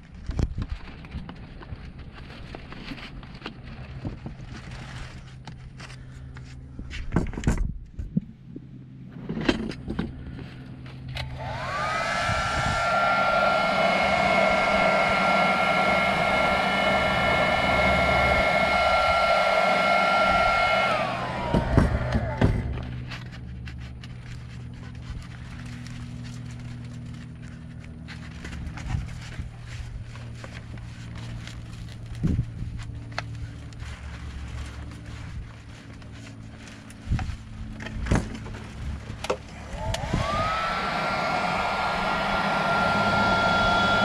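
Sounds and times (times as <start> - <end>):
heat gun fan whine: 11.0 - 44.0
rush of air: 11.4 - 23.0, 39.6 - 44.0.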